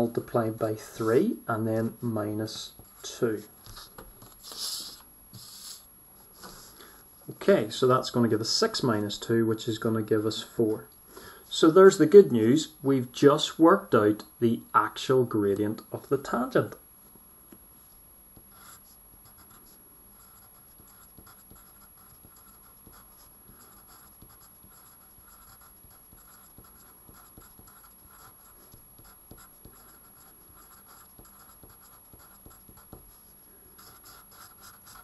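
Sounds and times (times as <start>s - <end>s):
pen scratching on paper: 2.8s - 5.8s, 18.4s - 35.0s.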